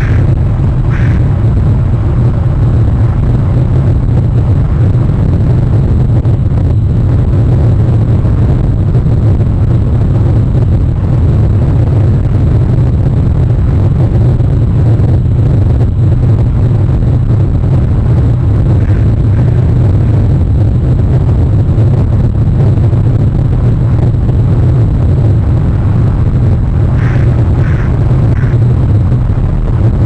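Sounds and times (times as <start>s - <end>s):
wind buffeting a microphone: 0.0s - 30.0s.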